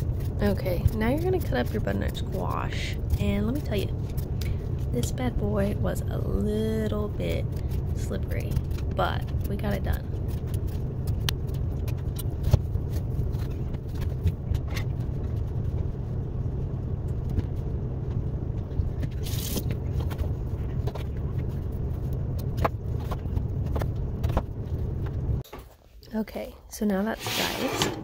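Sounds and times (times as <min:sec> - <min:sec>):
steady low rumble: 0:00.0 - 0:25.5
hissing scrape: 0:27.1 - 0:28.0.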